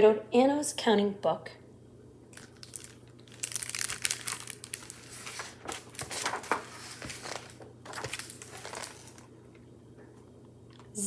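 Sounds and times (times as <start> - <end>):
book pages turning: 2.4 - 9.7.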